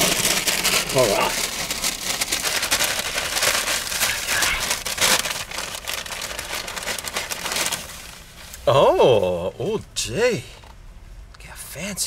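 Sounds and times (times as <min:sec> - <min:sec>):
paper bag rustling: 0:00.0 - 0:08.6.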